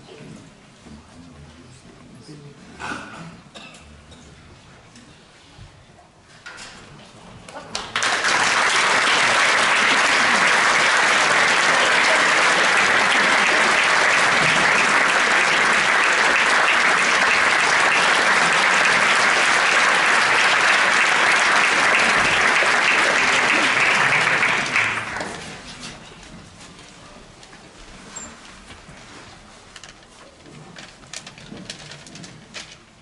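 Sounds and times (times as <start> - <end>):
audience applauding: 7.7 - 25.7.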